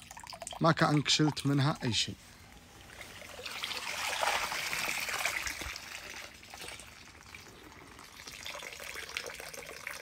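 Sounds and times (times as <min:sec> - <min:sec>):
water dribbling off plants: 0:02.8 - 0:10.0.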